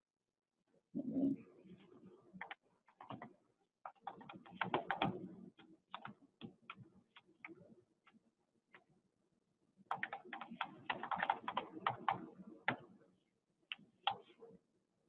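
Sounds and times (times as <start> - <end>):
typing on computer keyboard: 2.4 - 3.3, 3.9 - 7.6, 9.9 - 12.9.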